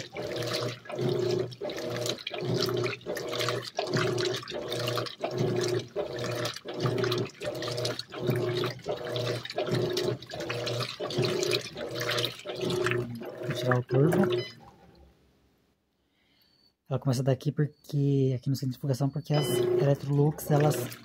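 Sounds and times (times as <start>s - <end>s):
washing machine motor humming: 0.0s - 15.0s, 19.1s - 21.0s
water sloshing and splashing: 0.0s - 15.1s, 19.4s - 21.0s.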